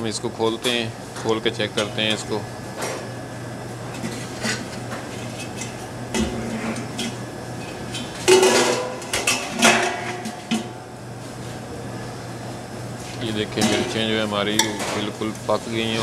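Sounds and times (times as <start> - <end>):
steady low hum: 0.0 - 16.0
metal pot lid and tongs clanking: 8.3 - 10.7, 14.6 - 15.1.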